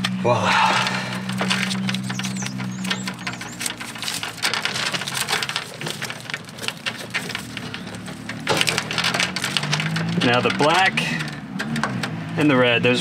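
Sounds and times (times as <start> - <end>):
wires clicking and scraping: 0.0 - 12.5.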